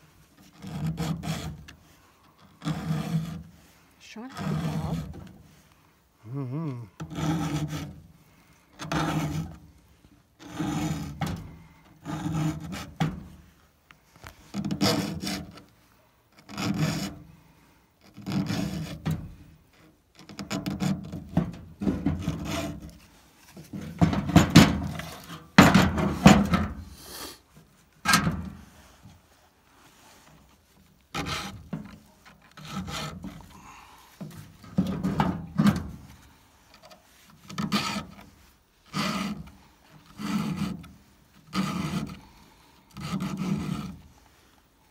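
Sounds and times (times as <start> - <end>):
file rasping on chainsaw chain: 0.4 - 1.7, 2.4 - 3.6, 4.3 - 5.3, 7.0 - 8.0, 8.8 - 9.6, 10.4 - 11.4, 12.0 - 13.0, 14.6 - 15.6, 16.4 - 17.2, 18.0 - 19.0, 22.2 - 23.0, 31.1 - 31.7, 32.5 - 33.8, 37.5 - 38.3, 38.9 - 40.9, 41.5 - 42.3, 42.9 - 44.0.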